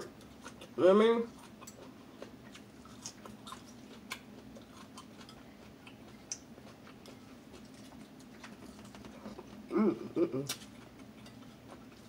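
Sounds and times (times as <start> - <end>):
person chewing food: 0.0 - 12.0.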